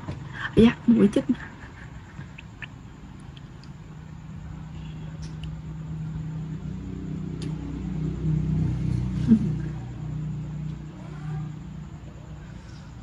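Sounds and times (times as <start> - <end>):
low engine hum: 3.0 - 13.0.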